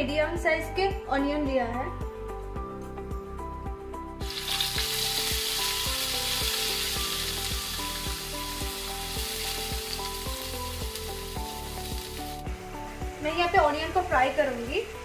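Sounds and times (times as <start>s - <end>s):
background music with steady beat: 0.0s - 15.0s
paste sizzling in hot oil: 4.2s - 12.5s.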